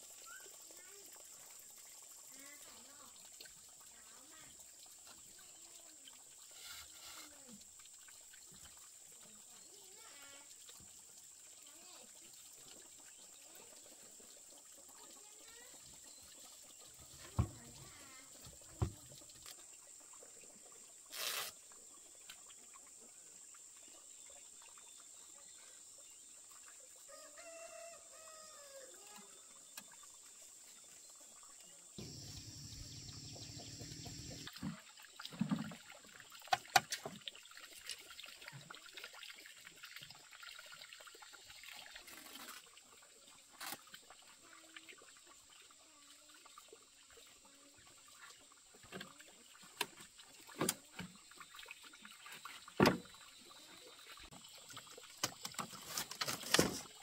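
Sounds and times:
rooster crowing: 27.1 - 28.9.

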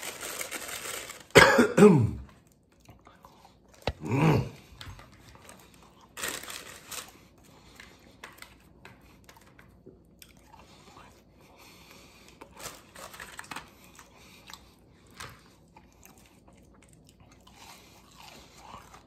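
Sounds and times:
food wrapping crinkling and tearing: 0.0 - 1.4, 4.7 - 10.4, 12.2 - 17.1.

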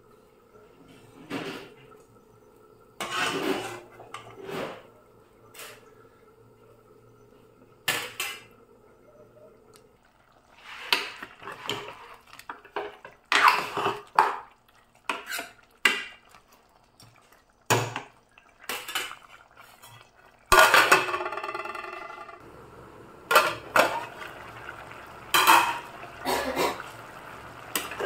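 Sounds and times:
metal spoon scraping a pot: 3.0 - 4.9, 15.1 - 15.6
metal lid clanking: 23.3 - 24.2, 25.3 - 25.9.

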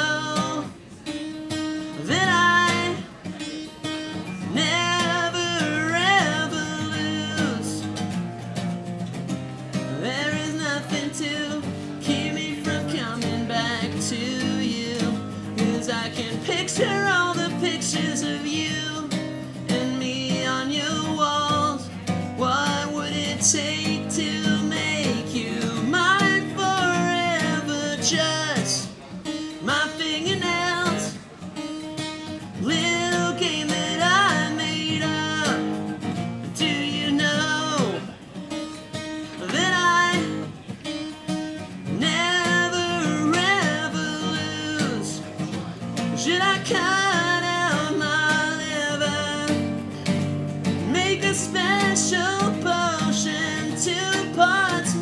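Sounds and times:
man singing: 0.0 - 8.5, 9.1 - 55.0
acoustic guitar strumming: 0.0 - 55.0.

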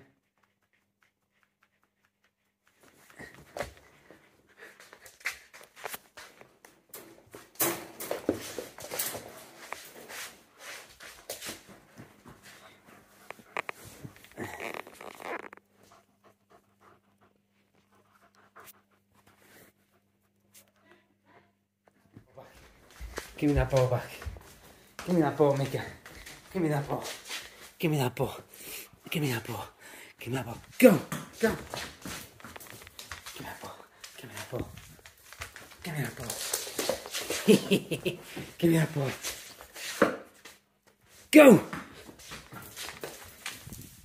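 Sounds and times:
dog panting: 0.0 - 5.8, 11.7 - 14.4, 15.7 - 38.6
dog scratching and grooming: 13.2 - 15.6.

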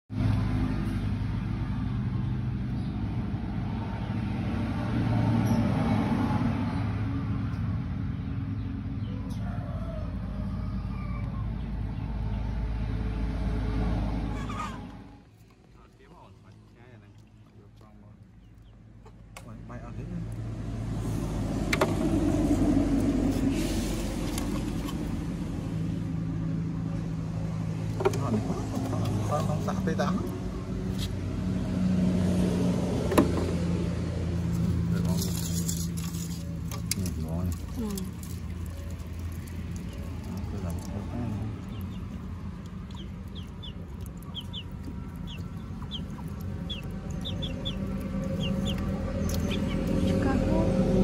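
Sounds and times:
motor engine running: 16.1 - 51.0.

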